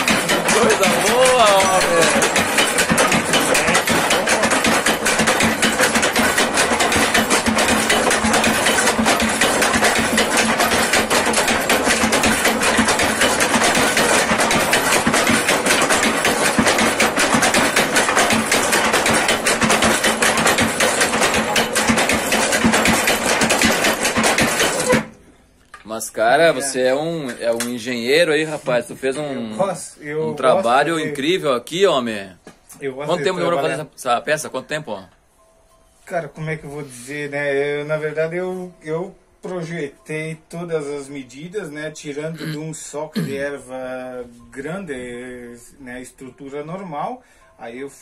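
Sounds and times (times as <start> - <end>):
wooden pestles knocking: 0.0 - 25.1.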